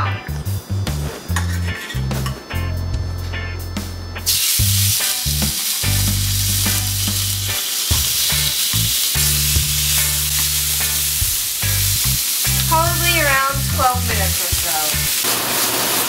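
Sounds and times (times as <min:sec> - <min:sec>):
chicken sizzling on a grill pan: 0:04.3 - 0:16.0.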